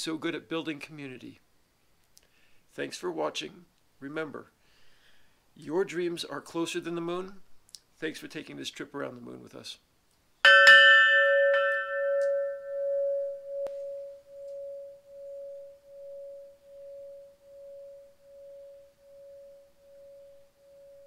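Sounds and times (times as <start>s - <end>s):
tubular chime ringing: 10.5s - 21.0s.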